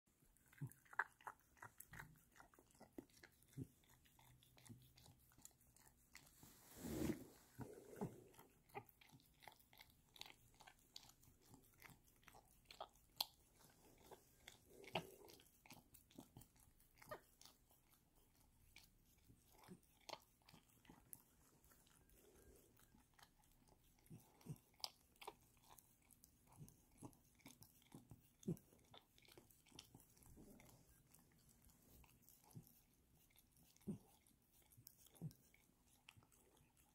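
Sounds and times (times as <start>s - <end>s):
dog lapping and licking: 0.1s - 36.9s.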